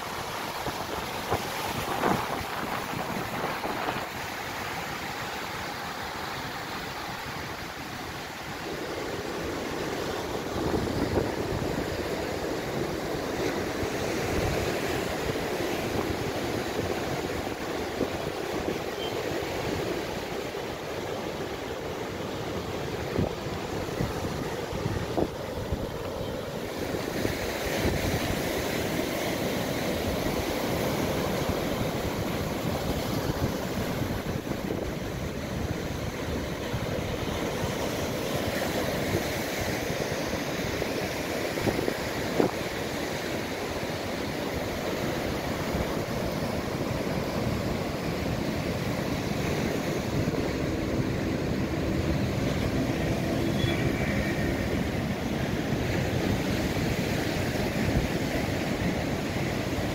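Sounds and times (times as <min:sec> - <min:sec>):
surf breaking on rocky shore: 0:00.0 - 0:59.9
wind buffeting microphone: 0:22.6 - 0:59.9.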